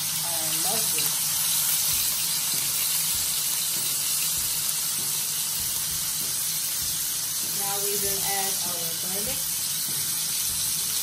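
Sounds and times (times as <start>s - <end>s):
steaks sizzling in a frying pan: 0.0s - 11.0s.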